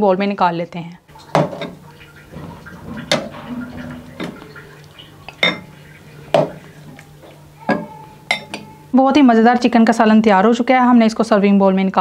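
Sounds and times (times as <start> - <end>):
metal ladle clinking on pot: 5.3 - 6.5, 7.6 - 8.8.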